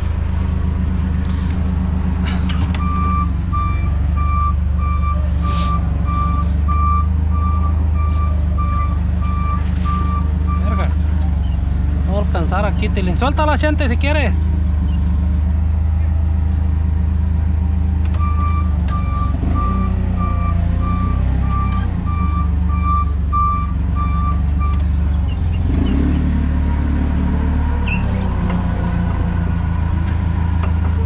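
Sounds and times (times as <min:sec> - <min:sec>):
forklift engine running: 0:00.0 - 0:31.0
reversing alarm beeping: 0:02.8 - 0:10.8, 0:18.2 - 0:24.8.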